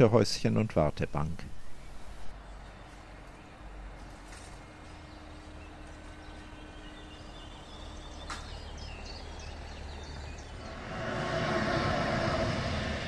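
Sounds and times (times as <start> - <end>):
birds chirping: 0.0 - 11.0
low background rumble: 9.6 - 13.0.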